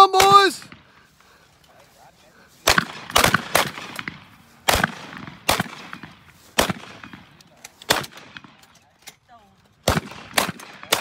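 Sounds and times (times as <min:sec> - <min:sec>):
shotgun shots: 0:02.6 - 0:08.6, 0:09.8 - 0:11.0.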